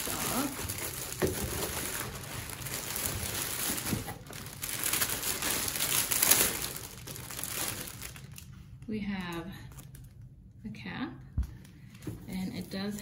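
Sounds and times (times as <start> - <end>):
plastic bag crinkling: 0.0 - 10.3.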